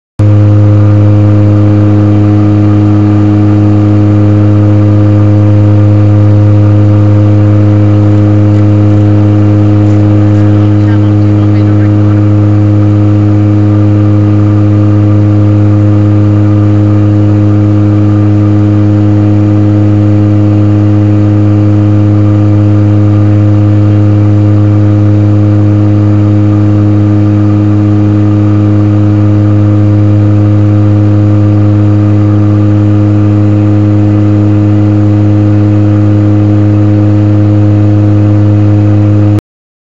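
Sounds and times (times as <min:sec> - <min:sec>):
turboprop engine drone in cabin: 0:00.2 - 0:39.4.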